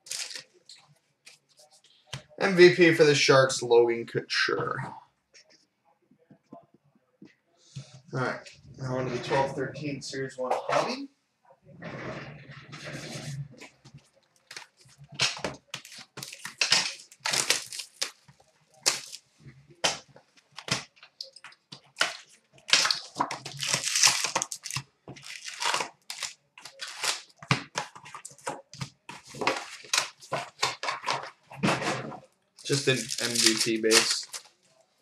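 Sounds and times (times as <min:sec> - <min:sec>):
plastic wrap tearing: 0:00.0 - 0:00.5, 0:12.8 - 0:19.2, 0:19.8 - 0:31.3, 0:32.6 - 0:34.5
foil packs crinkling: 0:00.0 - 0:00.6, 0:13.2 - 0:19.3, 0:20.4 - 0:31.4, 0:32.6 - 0:34.6.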